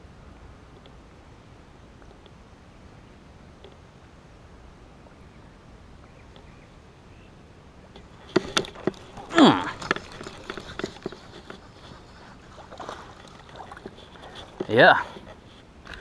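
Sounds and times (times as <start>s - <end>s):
person exclaiming: 9.3s - 9.8s.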